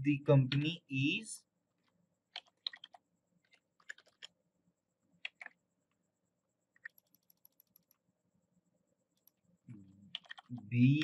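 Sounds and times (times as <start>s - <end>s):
keyboard keystrokes: 2.3s - 4.4s, 5.2s - 5.6s, 10.1s - 10.6s
mouse clicks: 6.7s - 8.0s, 9.2s - 9.4s.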